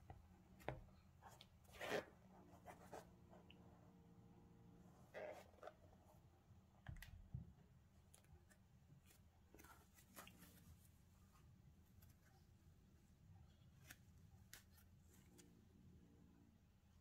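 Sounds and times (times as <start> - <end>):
faint rustling of a sneaker: 0.4 - 3.5, 8.1 - 15.7.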